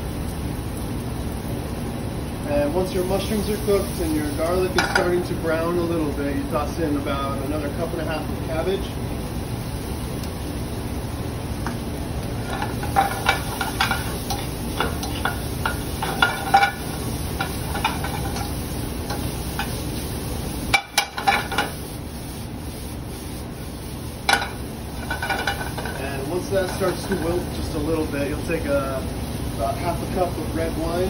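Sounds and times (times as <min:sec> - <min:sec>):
vegetables sizzling in a pan: 0:00.0 - 0:31.0
utensil clatter: 0:04.5 - 0:05.3, 0:12.4 - 0:20.0, 0:20.7 - 0:21.9, 0:24.2 - 0:27.9
utensil clicking and scraping pan: 0:12.4 - 0:19.8.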